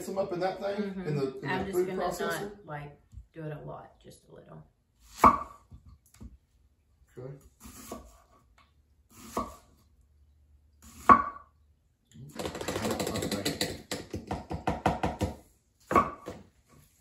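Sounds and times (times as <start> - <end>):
knife chopping on wooden board: 5.2 - 5.8, 9.2 - 9.7, 11.0 - 11.5, 12.4 - 16.4.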